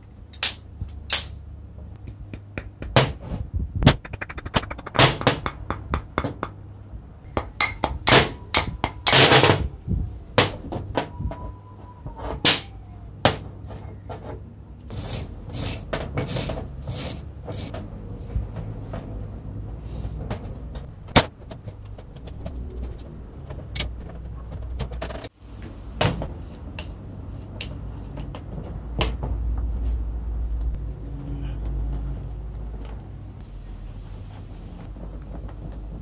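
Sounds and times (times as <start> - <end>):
metal parts clicking and knocking: 0.0 - 1.4, 20.3 - 25.3.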